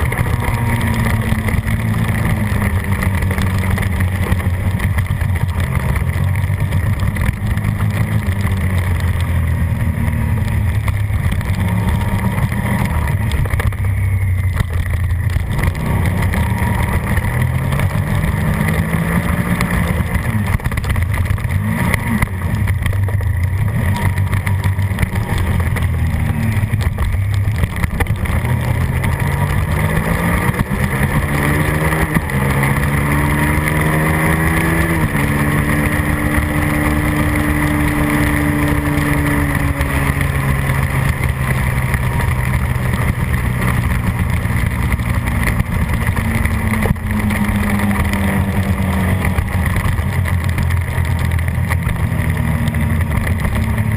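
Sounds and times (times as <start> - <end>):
motorcycle engine revving: 0.0 - 53.9.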